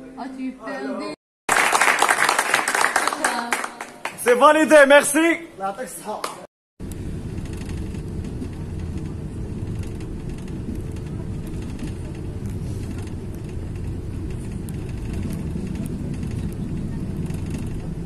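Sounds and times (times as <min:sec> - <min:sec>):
vehicle cabin rumble: 0:06.8 - 0:18.0.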